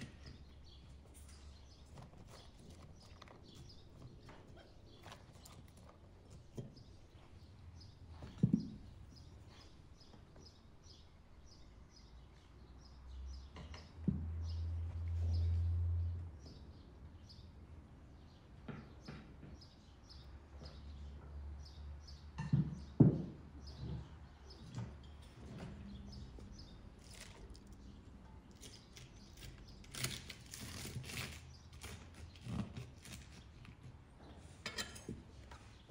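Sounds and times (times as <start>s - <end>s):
small birds chirping: 0.0s - 14.6s, 18.2s - 22.9s, 23.6s - 33.6s.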